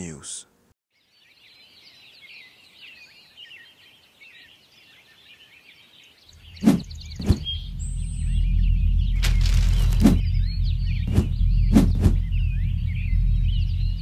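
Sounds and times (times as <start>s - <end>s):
small birds chirping: 0.0s - 14.0s
low droning rumble: 6.4s - 14.0s.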